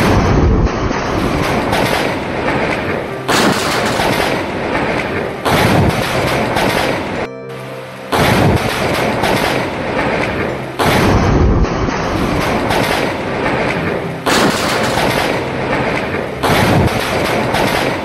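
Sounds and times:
thunder crack and rumble: 0:00.0 - 0:07.1
rain: 0:00.0 - 0:18.0
wind: 0:00.0 - 0:18.0.

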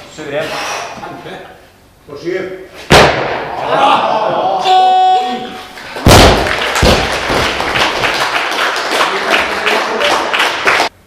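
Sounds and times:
spectators applauding: 0:05.7 - 0:10.9
barbell crashing onto platform: 0:06.0 - 0:07.5
barbell bounce thud: 0:06.0 - 0:07.6.

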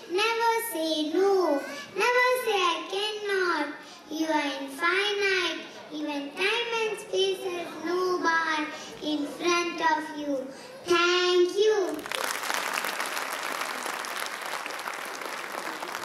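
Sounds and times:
audience applause: 0:12.0 - 0:16.0.

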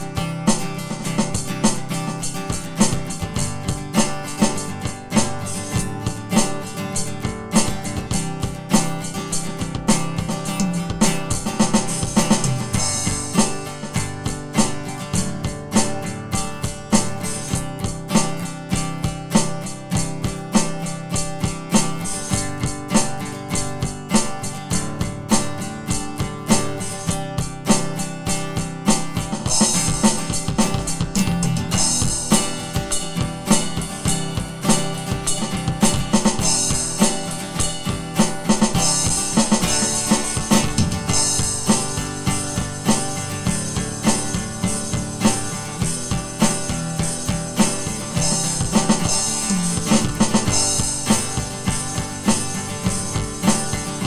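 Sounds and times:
backing track with guitar: 0:00.0 - 0:54.0
electronic drum kit groove: 0:00.0 - 0:54.0
bright cymbal playing: 0:07.8 - 0:15.3, 0:28.6 - 0:54.0.

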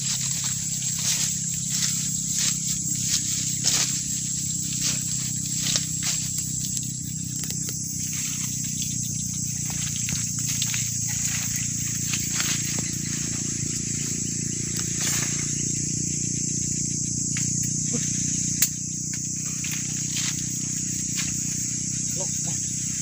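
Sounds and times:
leaves rustling: 0:00.0 - 0:16.4, 0:19.3 - 0:23.0
high-pitched insect chirring: 0:00.0 - 0:23.0
sharp click: 0:18.6 - 0:18.8.

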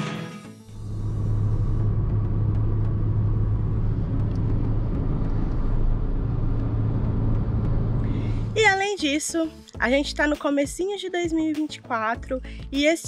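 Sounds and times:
constant low hum: 0:00.7 - 0:08.7
tyre and road rumble: 0:00.7 - 0:08.7.

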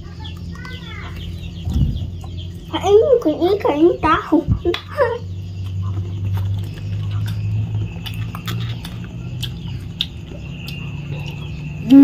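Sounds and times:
low hum: 0:00.0 - 0:12.0
chewing: 0:05.5 - 0:12.0
fingers breaking up food: 0:05.6 - 0:11.9.

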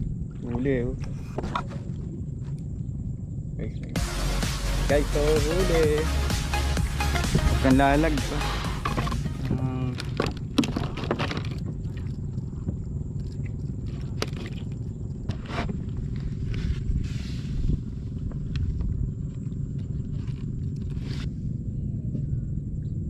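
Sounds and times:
low rumble: 0:00.0 - 0:23.0
knocks and scrapes on plastic: 0:01.0 - 0:01.9.

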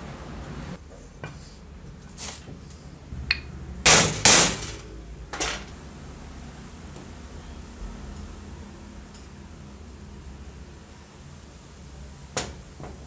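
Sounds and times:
metal parts knocking together: 0:03.9 - 0:05.7.

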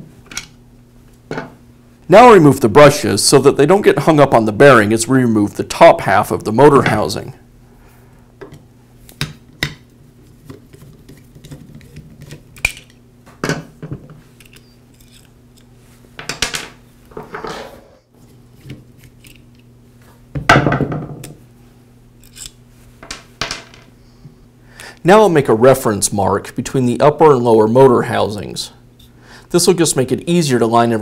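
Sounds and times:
clicks and scrapes of small parts: 0:14.4 - 0:15.7, 0:18.6 - 0:19.7, 0:22.2 - 0:22.6.

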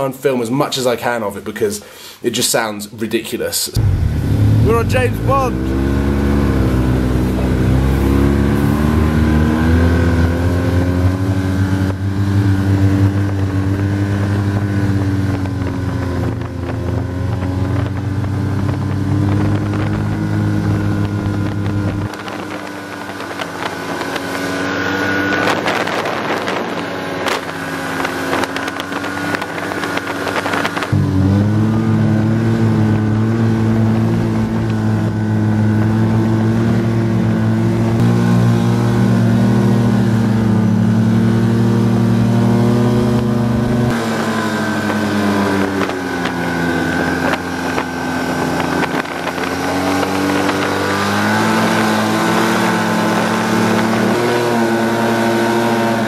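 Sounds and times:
snowmobile engine running: 0:03.8 - 0:56.0
wind noise: 0:03.8 - 0:56.0.

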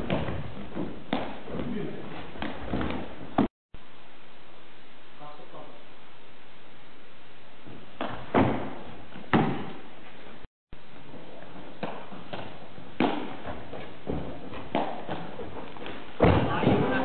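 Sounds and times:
thuds of kicks: 0:08.0 - 0:09.8, 0:16.2 - 0:17.0.

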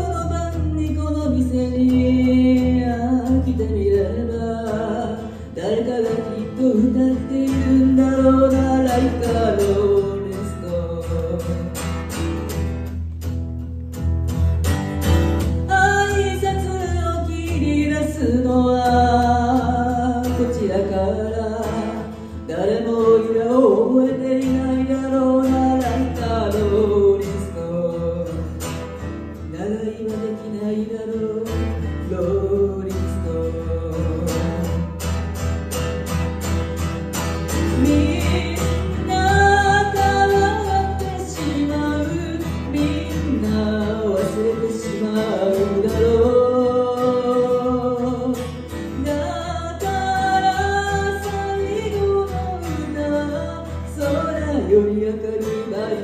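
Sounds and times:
woman singing pop ballad: 0:00.0 - 0:11.8, 0:15.6 - 0:28.6, 0:37.5 - 0:56.0
strummed acoustic guitar: 0:00.0 - 0:56.0.

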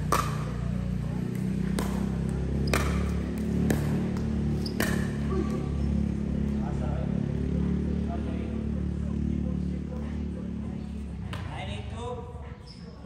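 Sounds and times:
racket hitting ball: 0:00.0 - 0:06.6.

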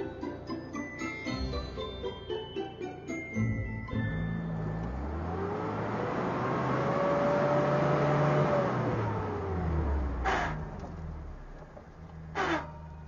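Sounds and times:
pickup engine revving hard: 0:04.8 - 0:10.9.

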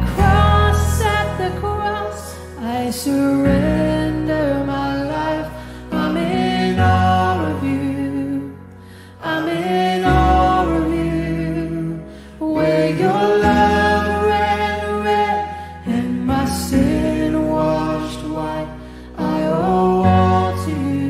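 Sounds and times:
bass guitar held notes: 0:00.0 - 0:02.0
woman singing: 0:00.0 - 0:08.5
acoustic guitar: 0:00.0 - 0:21.0
electric keyboard: 0:00.0 - 0:21.0.

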